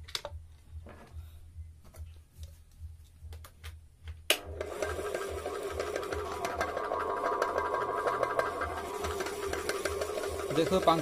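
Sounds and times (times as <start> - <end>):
ceiling fan motor whirring: 4.3 - 11.0.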